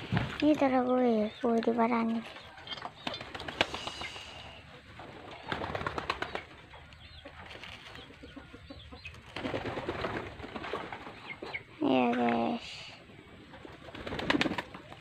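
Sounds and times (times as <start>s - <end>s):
pigeons fluttering: 1.8s - 8.4s, 9.0s - 11.7s, 13.1s - 15.0s
pigeons cooing: 2.2s - 15.0s.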